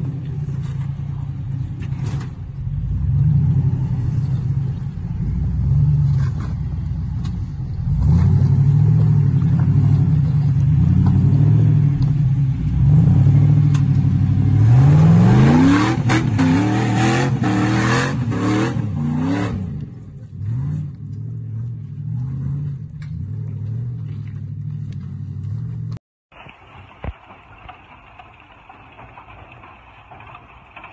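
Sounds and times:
engine revving under load: 2.0 - 26.0.

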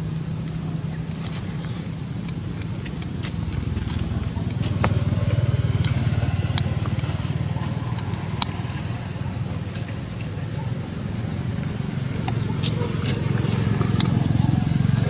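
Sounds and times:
high-pitched hiss: 0.0 - 15.0
low engine hum: 0.0 - 15.0
faint clicks: 1.2 - 8.8.

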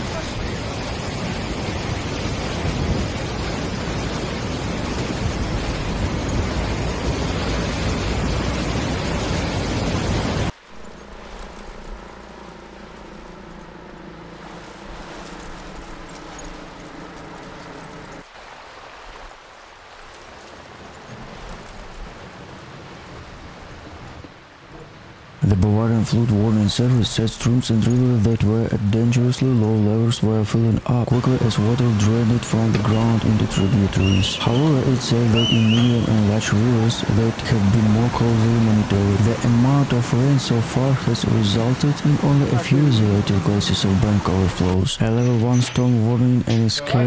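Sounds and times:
distant helicopter drone: 0.0 - 18.3, 19.9 - 47.0
river rushing in flood: 0.0 - 47.0
faint outdoor background: 23.9 - 47.0.

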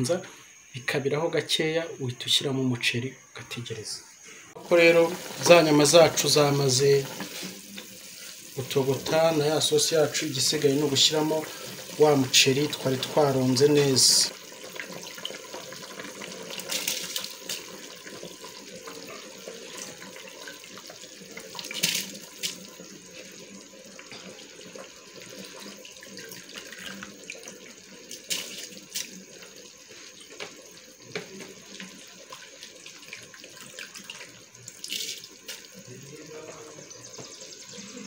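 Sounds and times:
sauce bubbling in a pot: 4.6 - 38.0
splashes: 21.5 - 22.6, 33.5 - 35.7.

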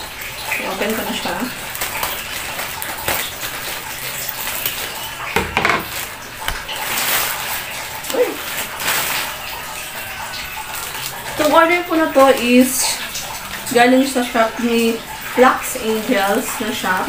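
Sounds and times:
plastic wrapping crinkling: 0.4 - 12.5.

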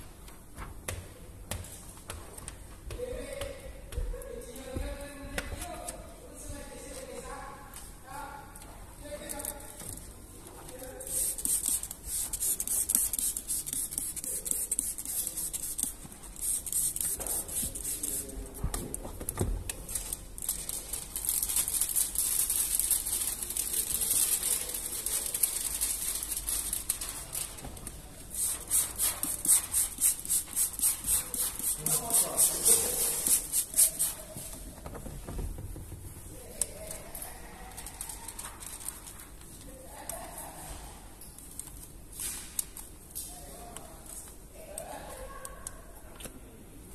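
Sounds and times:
spray bottle squirting: 11.0 - 18.3, 28.4 - 34.3.

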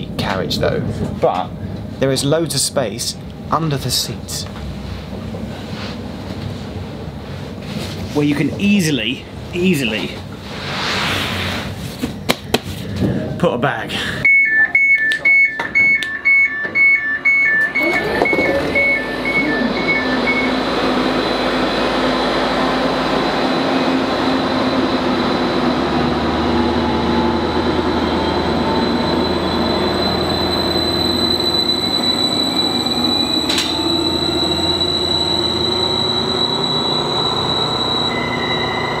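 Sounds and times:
train engine whine: 12.9 - 39.0.

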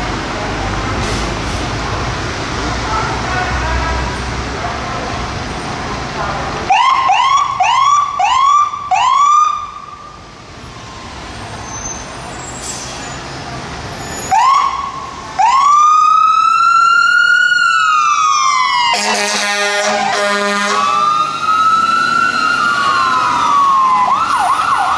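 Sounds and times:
engine and street noise: 0.0 - 24.9
fire engine siren: 6.7 - 11.5, 14.2 - 24.9
horn blast: 18.9 - 21.0.

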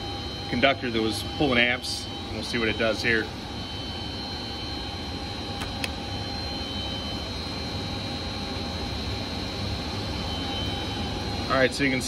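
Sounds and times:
faint high whine: 0.0 - 12.0.

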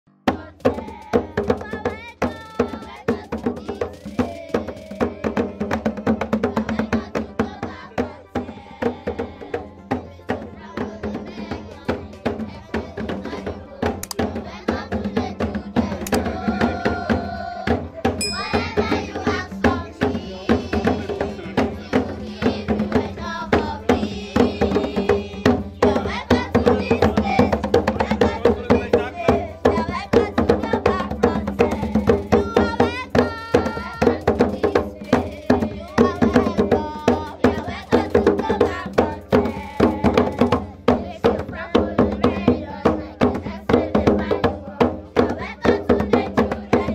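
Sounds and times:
lively percussive music: 0.1 - 46.9
people singing: 0.3 - 46.9
voices: 15.6 - 41.6.

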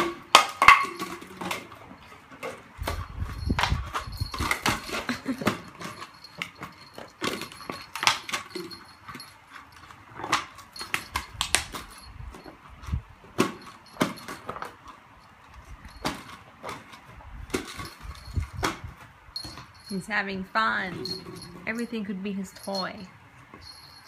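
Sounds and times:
bottle clattering on tiled floor: 0.0 - 9.3, 13.3 - 14.9.

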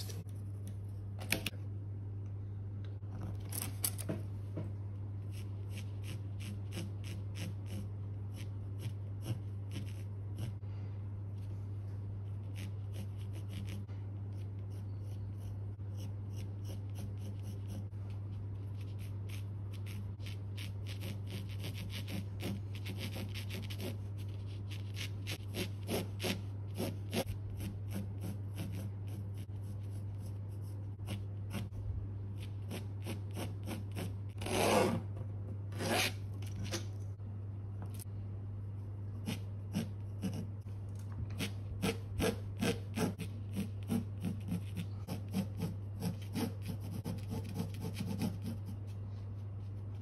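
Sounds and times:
pencil scratching on canvas: 5.2 - 10.6, 12.2 - 31.7, 32.4 - 35.0, 39.1 - 40.6, 41.3 - 50.0
ruler scraping canvas: 32.7 - 35.1, 35.7 - 36.9.

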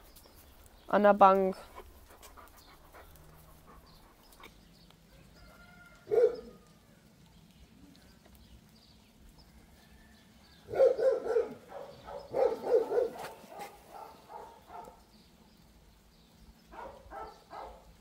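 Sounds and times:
dog barking: 6.0 - 6.6, 10.7 - 15.0, 16.7 - 17.9.

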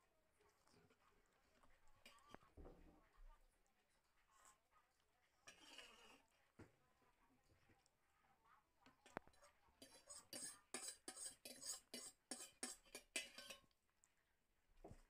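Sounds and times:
cutlery clinking on metal bowl: 9.0 - 13.7.

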